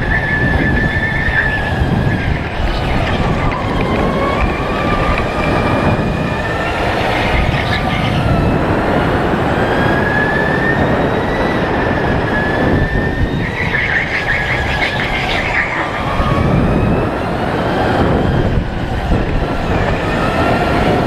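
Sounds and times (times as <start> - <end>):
tyre squeal: 0.0 - 5.5
electric kart motor whining: 0.0 - 21.0
tyres rumbling on track: 0.0 - 21.0.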